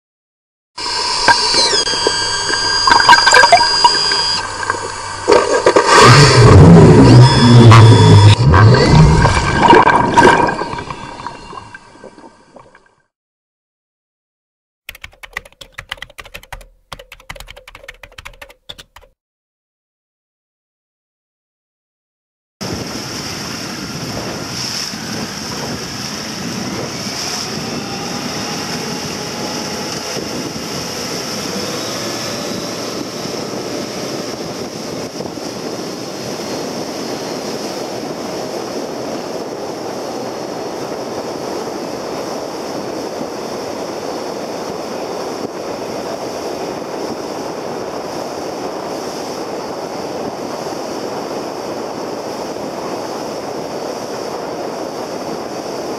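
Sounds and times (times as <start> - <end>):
outboard motor: 0.8 - 11.5, 22.6 - 55.9
water rushing along hull: 0.8 - 13.0, 22.6 - 55.9
wind buffeting microphone: 22.6 - 55.9.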